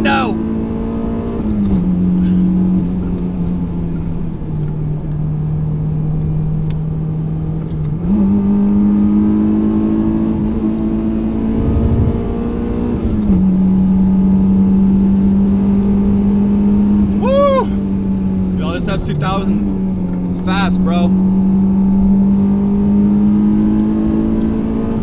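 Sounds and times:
car engine running: 11.2s - 13.6s.

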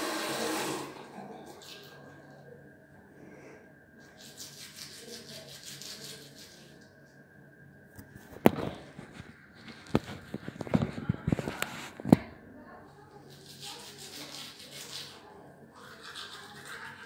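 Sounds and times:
toothbrush scrubbing teeth: 4.0s - 6.9s, 13.2s - 17.0s.

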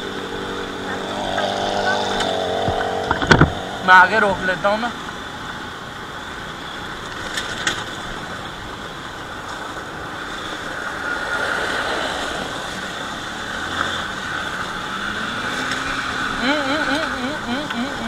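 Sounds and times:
wind noise: 0.0s - 3.8s
truck passing: 0.0s - 5.4s, 7.6s - 18.0s
motorcycle engine on gravel: 0.2s - 4.4s.

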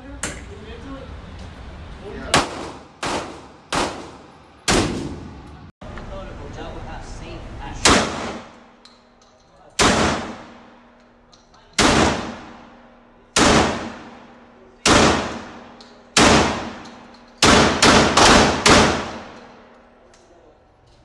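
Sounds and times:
shotgun shots echoing indoors: 2.4s - 5.4s, 7.8s - 8.7s, 9.8s - 10.9s, 11.8s - 19.8s.

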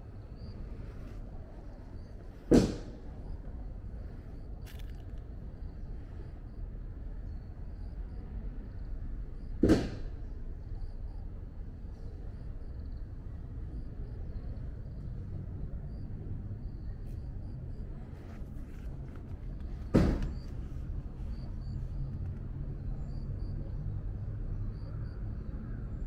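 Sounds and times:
distant traffic rumble: 0.0s - 26.0s
sharp knock: 2.5s - 3.0s.

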